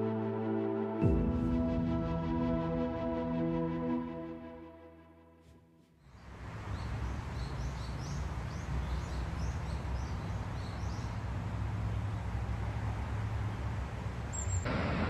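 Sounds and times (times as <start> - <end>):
small birds chirping: 6.0 - 12.4, 14.3 - 14.7.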